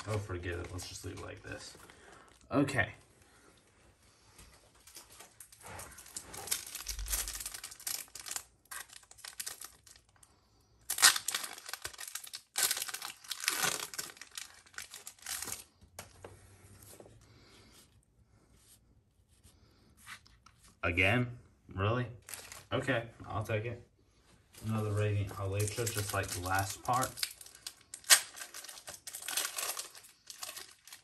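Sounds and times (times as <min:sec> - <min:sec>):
cards rustling: 0:00.0 - 0:02.4, 0:24.6 - 0:31.0
foil wrapper tearing and crinkling: 0:06.1 - 0:10.2, 0:10.9 - 0:15.7, 0:25.4 - 0:31.0.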